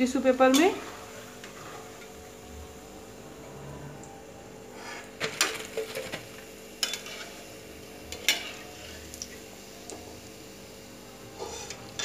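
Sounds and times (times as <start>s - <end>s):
faint frying sizzle: 0.0s - 12.0s.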